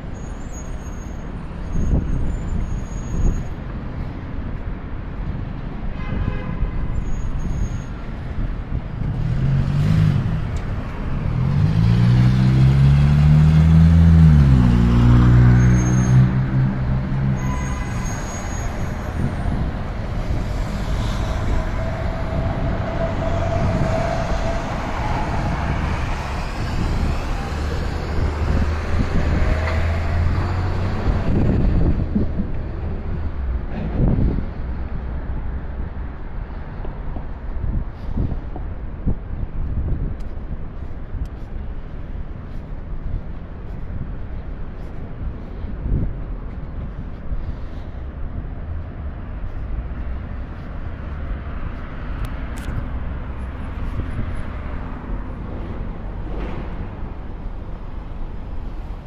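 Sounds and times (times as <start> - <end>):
cars and trucks passing: 0.0 - 59.0
engine revving passing close: 9.1 - 17.4, 19.2 - 32.2.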